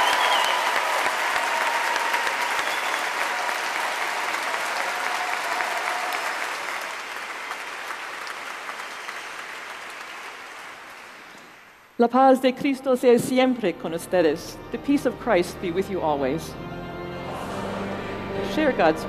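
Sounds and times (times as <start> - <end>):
congregation applauding: 0.0 - 12.0.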